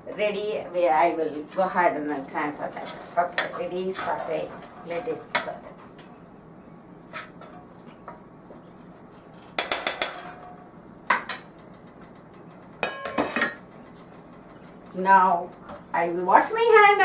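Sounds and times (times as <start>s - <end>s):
steel pan and lid clattering: 12.8s - 13.6s.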